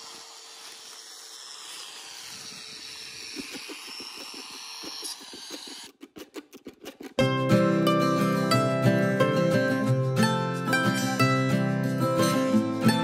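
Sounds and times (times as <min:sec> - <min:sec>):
steady rushing hiss: 0:00.0 - 0:05.9.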